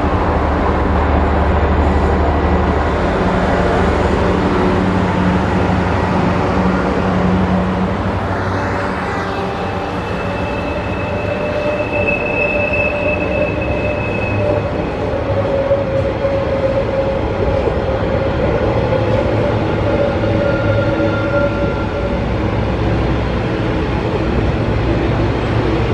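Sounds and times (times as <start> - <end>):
diesel locomotive engine drone: 0.0 - 25.9
train wheels squealing: 9.0 - 22.4.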